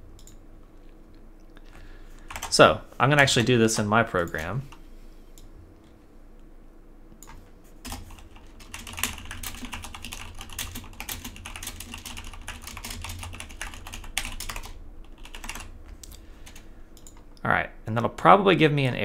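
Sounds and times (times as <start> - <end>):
fast typing on keyboard: 2.3 - 2.6, 7.8 - 15.7, 16.4 - 17.2.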